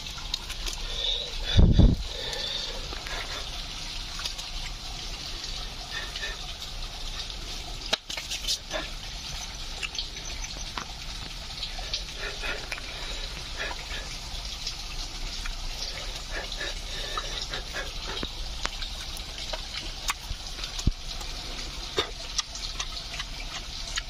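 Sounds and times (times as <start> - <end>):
running water: 0.0 - 24.0
person chewing: 0.1 - 4.5, 11.2 - 14.2, 15.4 - 24.0.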